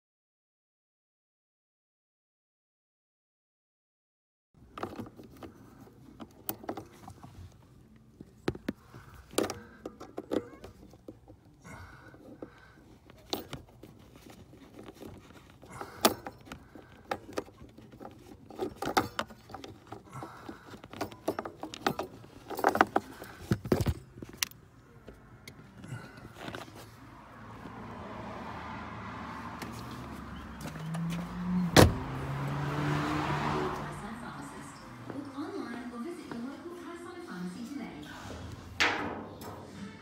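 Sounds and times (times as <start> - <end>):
clicks rattles and knocks of handling parts: 4.6 - 27.0, 38.8 - 40.0.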